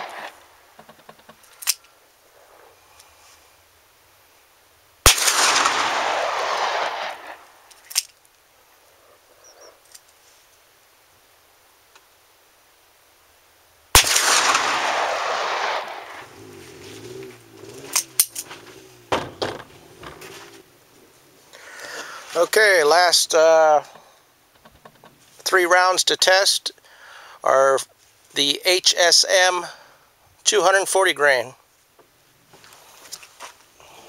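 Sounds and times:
revolver shots with echo: 0:05.1 - 0:07.4, 0:14.0 - 0:16.5
sharp clicks: 0:17.9 - 0:18.5.

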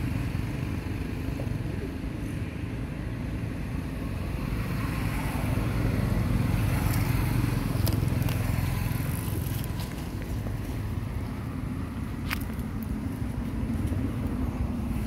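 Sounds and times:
vehicle engine rumble passing: 0:00.0 - 0:15.0.

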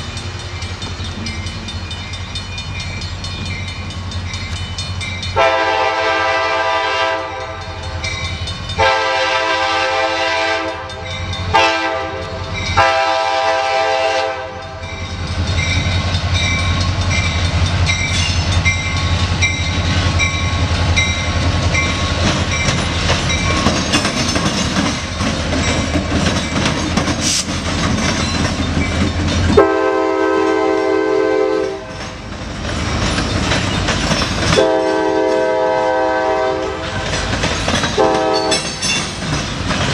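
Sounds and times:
diesel engine rumbling: 0:00.0 - 0:05.5
wheels clattering on rails: 0:00.0 - 0:39.9
locomotive horn: 0:05.4 - 0:07.8, 0:08.8 - 0:14.8, 0:29.6 - 0:31.9, 0:34.5 - 0:37.0, 0:38.0 - 0:38.7.

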